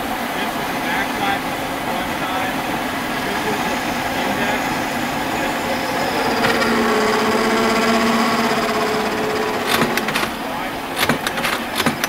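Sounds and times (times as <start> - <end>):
steady pitched whine: 0.0 - 11.0
screw machine whirring and clattering: 5.6 - 12.0.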